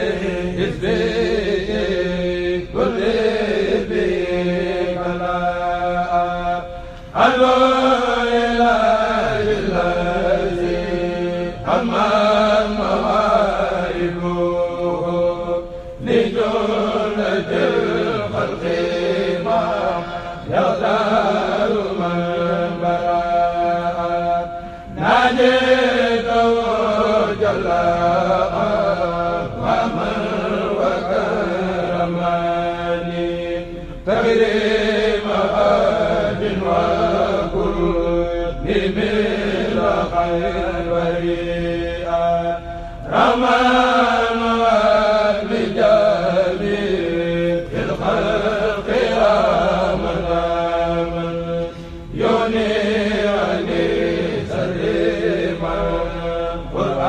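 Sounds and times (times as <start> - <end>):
men chanting: 0.0 - 57.0.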